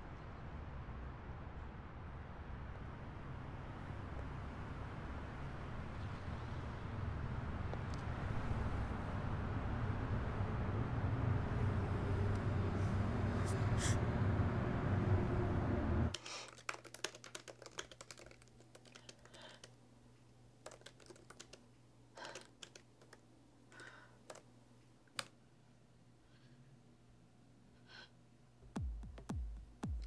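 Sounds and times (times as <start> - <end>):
street noise with low rumble: 0.0 - 16.2
laptop keyboard typing: 16.1 - 19.8, 20.6 - 21.6, 22.2 - 24.5.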